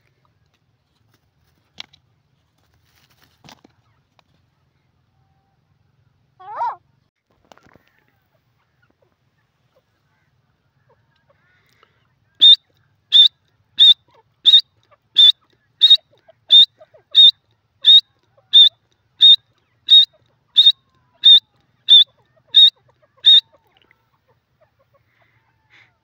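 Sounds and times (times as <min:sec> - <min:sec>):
bird calling high sharp notes: 0:12.4 - 0:14.6, 0:15.2 - 0:23.5.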